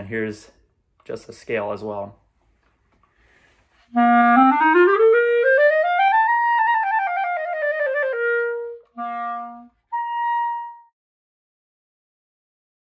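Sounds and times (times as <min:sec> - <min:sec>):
clarinet playing a scale: 0:03.9 - 0:11.0.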